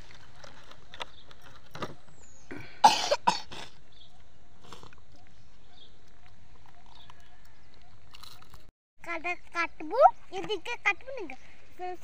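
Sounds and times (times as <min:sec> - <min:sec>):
person coughing: 0:02.5 - 0:03.8.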